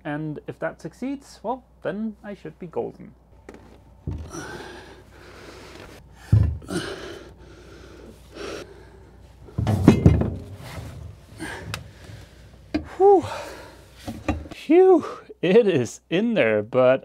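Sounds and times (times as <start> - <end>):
thumps and knocks: 3.4 - 4.5, 6.3 - 6.8, 9.5 - 11.9, 14.0 - 14.6
man breathing hard and straining: 4.1 - 9.6, 10.7 - 14.6
heavy metal unit thumping: 9.5 - 11.7.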